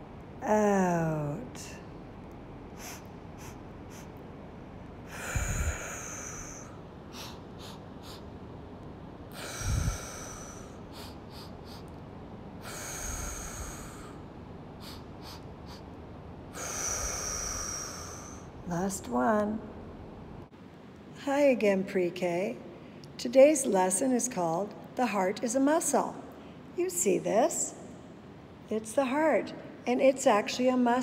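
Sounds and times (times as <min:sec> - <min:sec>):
woman blowing breath out: 0:09.4 - 0:11.5
woman sniffing through nose: 0:09.4 - 0:11.9, 0:16.6 - 0:18.5.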